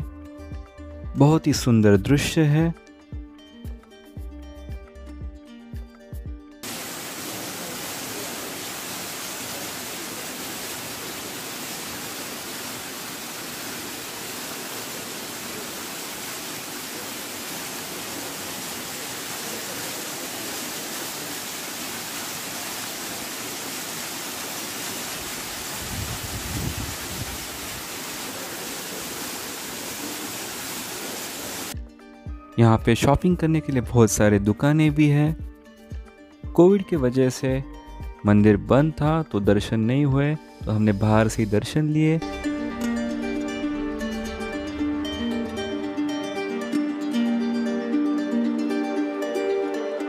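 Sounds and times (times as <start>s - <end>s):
waterfall rushing: 6.6s - 31.8s, 42.2s - 50.0s
low rumble: 42.2s - 46.4s.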